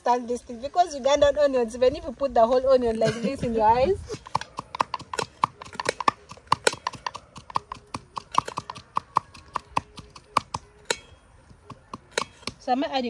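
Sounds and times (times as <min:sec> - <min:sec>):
wooden pestle pounding in mortar: 0:04.2 - 0:12.6.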